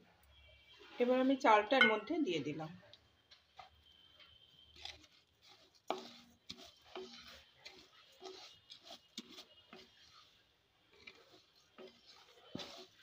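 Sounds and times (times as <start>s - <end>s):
spatula scraping metal pan: 3.6s - 13.0s.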